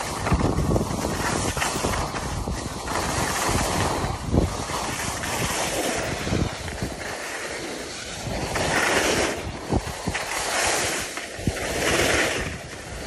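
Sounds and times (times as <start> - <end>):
skis scraping over snow: 0.0 - 13.0
wind buffeting microphone: 0.0 - 13.0.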